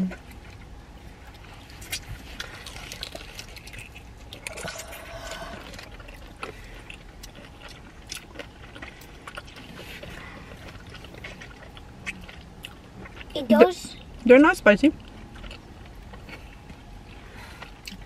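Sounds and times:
wet chewing: 0.0 - 18.0.

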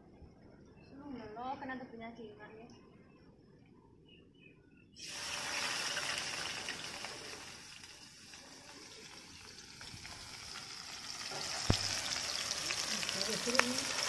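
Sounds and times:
paste sizzling in hot oil: 5.0 - 14.0.

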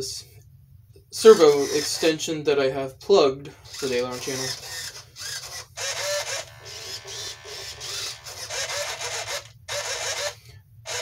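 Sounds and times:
servo gear-motor whine: 1.3 - 2.1, 3.7 - 11.0.

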